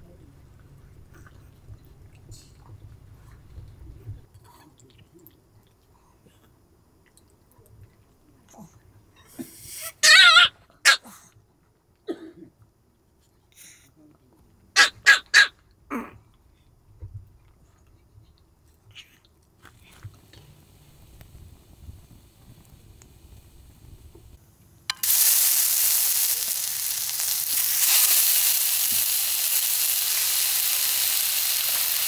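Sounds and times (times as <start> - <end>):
small dog barking: 10.0 - 11.2, 14.8 - 15.5.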